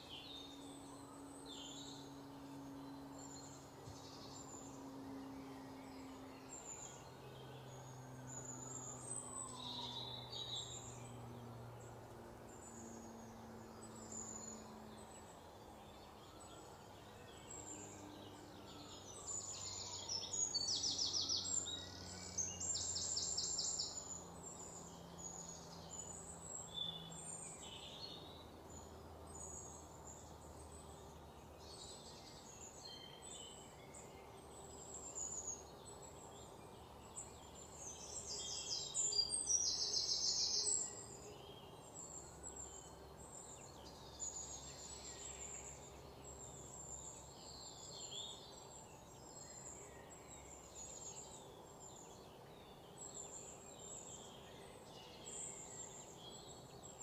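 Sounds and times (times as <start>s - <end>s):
outdoor background noise: 0.0s - 57.0s
birds chirping and trilling: 12.5s - 57.0s.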